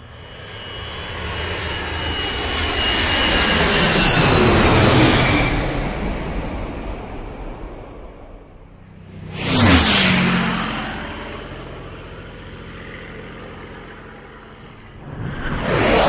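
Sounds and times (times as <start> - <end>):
car speeding past: 9.0 - 11.6.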